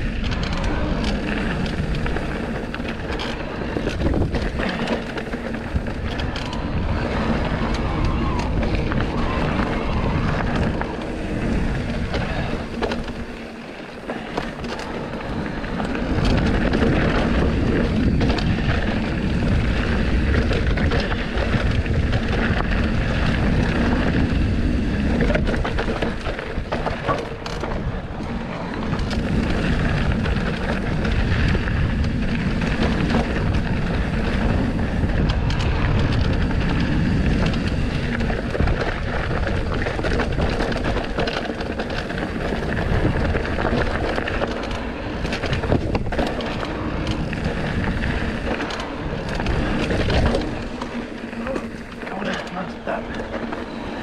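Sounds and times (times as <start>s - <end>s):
bike rattling and knocking: 0.0s - 54.0s
bike tyres rolling on dirt: 0.0s - 54.0s
wind buffeting microphone: 0.0s - 54.0s.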